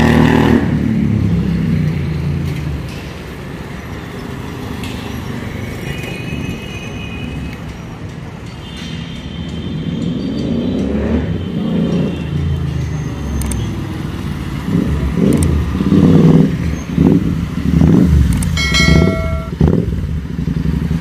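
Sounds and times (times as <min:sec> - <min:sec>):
motorcycle engine idling and revving: 0:00.0 - 0:05.8, 0:09.6 - 0:21.0.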